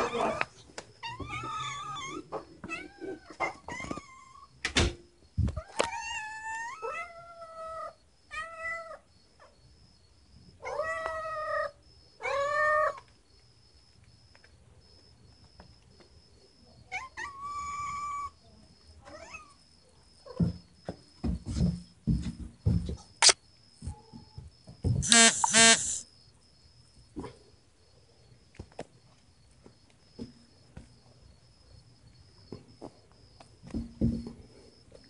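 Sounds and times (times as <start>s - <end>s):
cats meowing: 0.0s - 4.5s, 10.6s - 13.0s.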